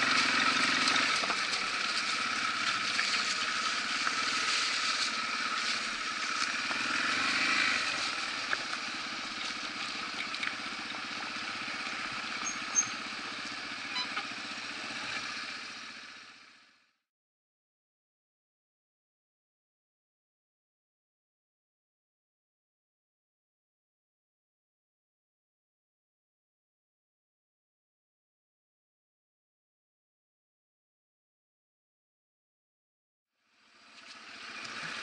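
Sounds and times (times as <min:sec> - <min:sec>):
gravel crunching under tyres: 0:00.0 - 0:13.8, 0:33.7 - 0:35.0
motorcycle engine running: 0:00.0 - 0:17.1, 0:33.4 - 0:35.0.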